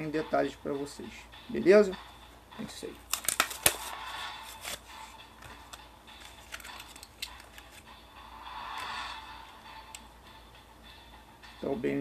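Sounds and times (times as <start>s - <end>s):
plastic packaging clicking and crinkling: 3.1s - 3.9s, 5.6s - 7.8s.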